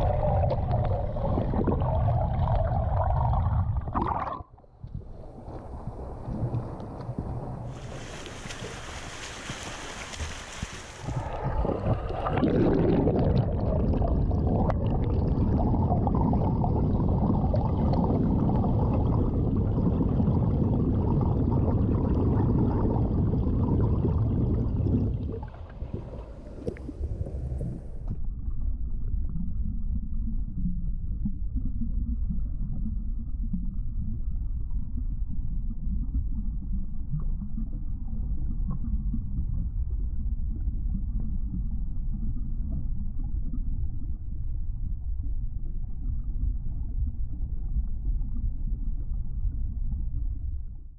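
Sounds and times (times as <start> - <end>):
muffled underwater sloshing: 0.0 - 28.2
swimming strokes splashing: 7.7 - 11.1.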